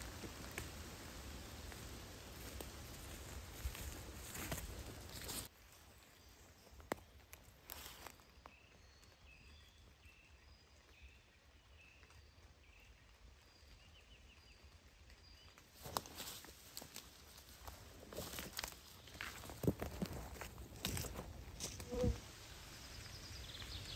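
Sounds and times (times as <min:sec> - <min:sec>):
footsteps through leafy undergrowth: 0:00.0 - 0:09.0, 0:15.6 - 0:22.5.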